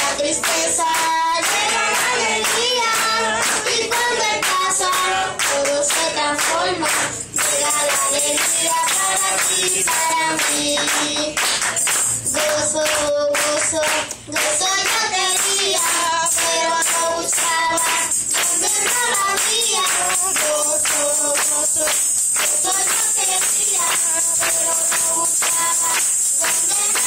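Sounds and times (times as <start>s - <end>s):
boy singing into microphone: 0.0s - 27.0s.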